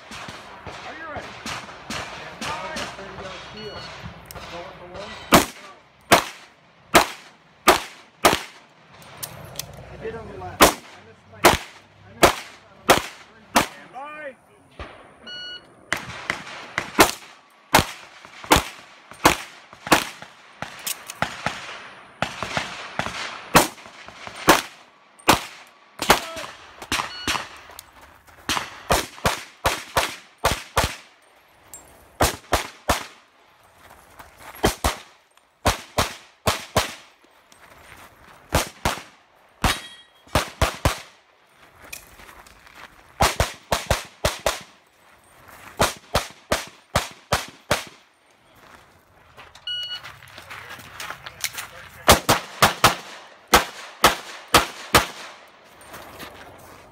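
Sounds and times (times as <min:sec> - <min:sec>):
pistol shots: 0:05.3 - 0:08.6, 0:10.6 - 0:13.9, 0:15.9 - 0:27.7, 0:28.5 - 0:31.1, 0:32.2 - 0:33.2, 0:34.6 - 0:37.1, 0:38.5 - 0:41.2, 0:43.2 - 0:44.8, 0:45.8 - 0:48.1, 0:52.0 - 0:55.4.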